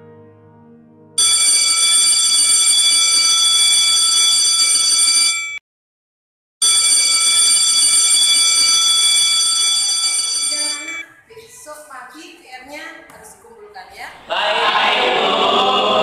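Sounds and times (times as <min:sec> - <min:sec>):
electric school bell ringing: 0:01.2 - 0:05.6, 0:06.6 - 0:11.0.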